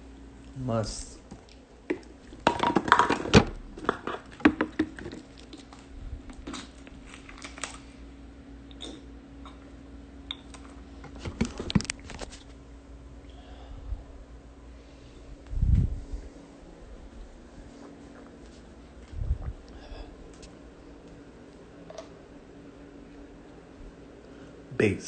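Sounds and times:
faint steady hum: 0.0 - 25.0
handling clicks and crinkles: 1.4 - 7.9, 10.5 - 12.5.

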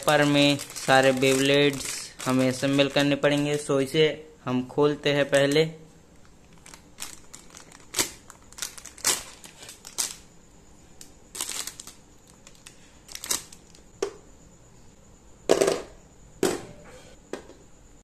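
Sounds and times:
plastic bag crinkling: 0.0 - 3.9, 6.2 - 10.3, 11.3 - 13.8.

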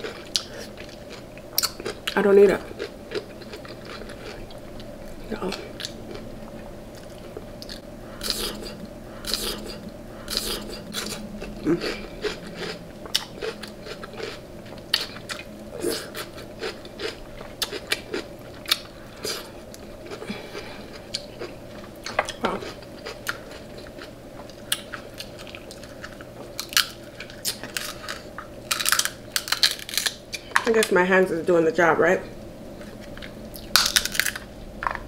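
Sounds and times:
chewing: 0.0 - 30.5
crab shells cracking: 22.1 - 30.6, 33.0 - 35.0.

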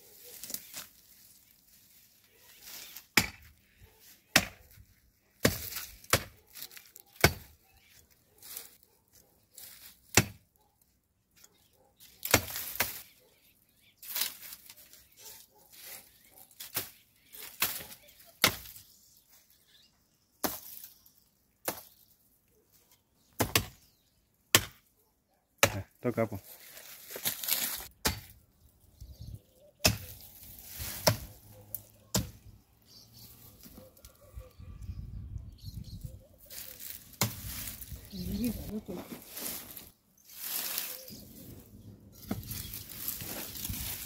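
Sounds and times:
machete chopping branches: 2.6 - 3.6, 4.3 - 4.8, 5.4 - 7.6, 9.6 - 10.4, 12.2 - 13.1, 16.6 - 18.8, 20.4 - 20.9, 21.6 - 22.0, 23.4 - 23.9, 24.5 - 24.9, 27.1 - 28.4, 29.8 - 32.5, 36.5 - 37.9.

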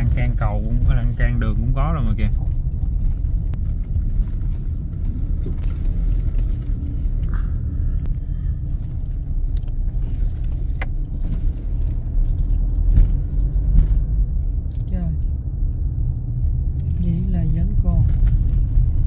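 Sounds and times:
vehicle engine and road rumble: 0.0 - 19.0.

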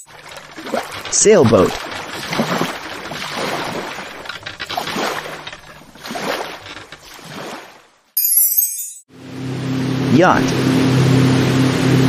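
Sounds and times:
water splashing along hull: 0.0 - 8.2.

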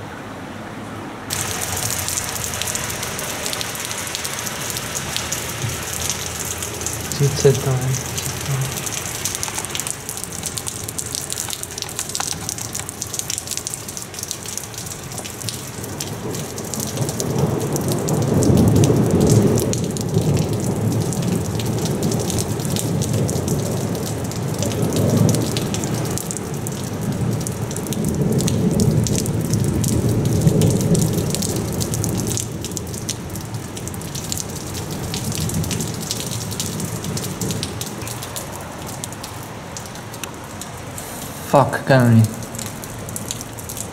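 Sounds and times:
rain hissing and pattering: 1.3 - 43.9
rolling thunder: 15.8 - 33.0.

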